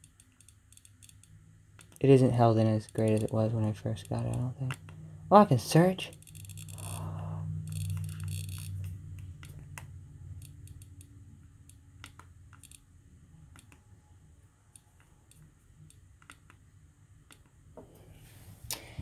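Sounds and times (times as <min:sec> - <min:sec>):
click wheel ticking: 0:00.0 - 0:05.0, 0:07.6 - 0:12.9, 0:13.5 - 0:13.8
low hum: 0:00.0 - 0:19.0.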